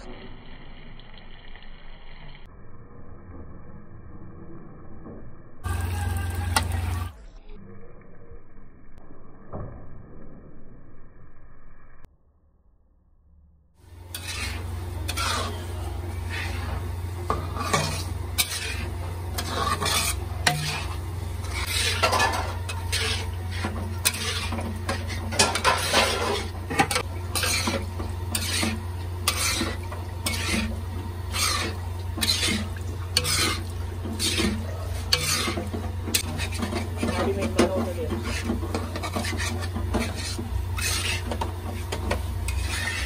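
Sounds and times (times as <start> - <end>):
steady low hum: 13.8 - 43.0
wooden spatula scraping iron pan: 13.9 - 43.0.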